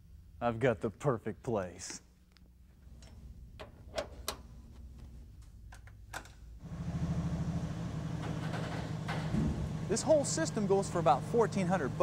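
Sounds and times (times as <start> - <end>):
winch humming under load: 6.6 - 12.0.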